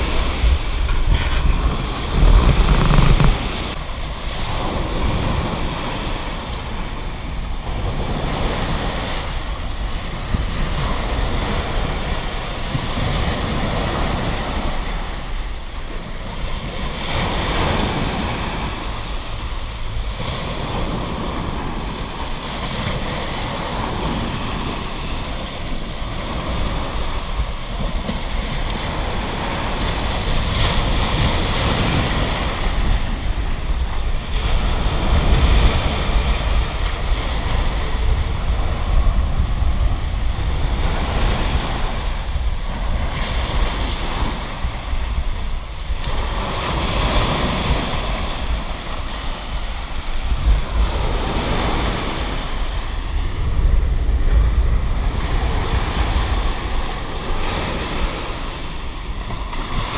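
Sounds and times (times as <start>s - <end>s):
loud low rumble: 0.0s - 5.4s
small waves breaking on shore: 0.0s - 59.9s.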